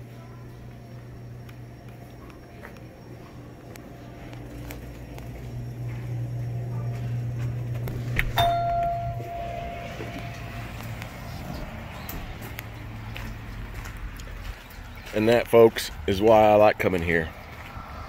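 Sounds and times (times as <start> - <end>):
low steady hum: 0.0 - 14.8
electronic entry chime: 8.4 - 10.8.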